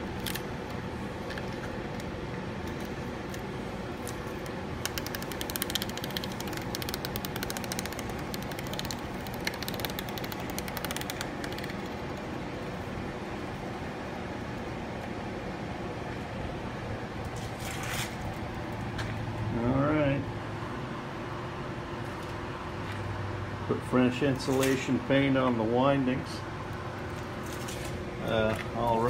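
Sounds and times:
steady background hum: 0.0s - 29.0s
tape peeling with crackling: 4.0s - 12.2s.

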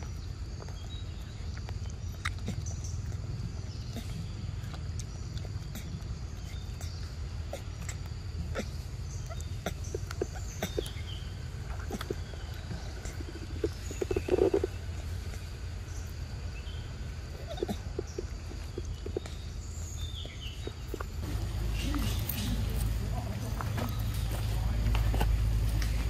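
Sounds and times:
monkey chewing and smacking: 0.0s - 26.0s
low rumble: 18.0s - 26.0s.

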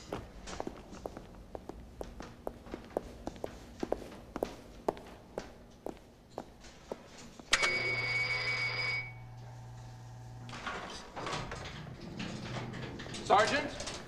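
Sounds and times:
footsteps on hard floor: 0.0s - 7.5s
low hum: 7.5s - 13.1s.

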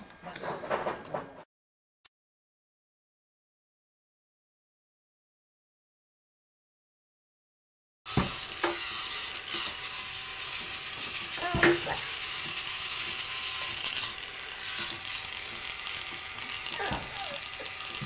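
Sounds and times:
toy car rattling on wood: 10.5s - 18.0s.

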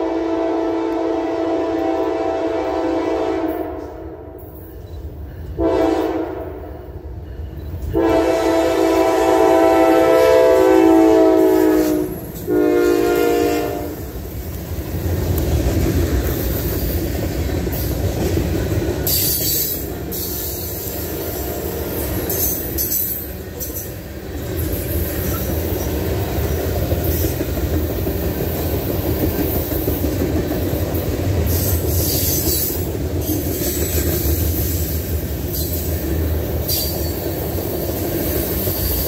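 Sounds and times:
train air horn blasts: 0.0s - 4.4s, 5.5s - 6.9s, 7.9s - 14.1s.

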